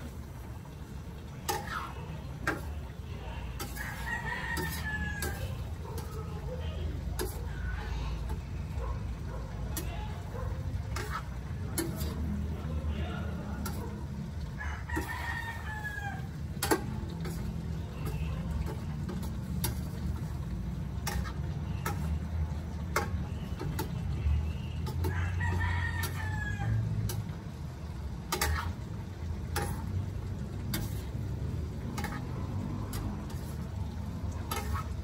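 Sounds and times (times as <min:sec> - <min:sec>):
rooster crowing: 0:03.6 - 0:05.6, 0:14.5 - 0:16.4, 0:25.0 - 0:26.9.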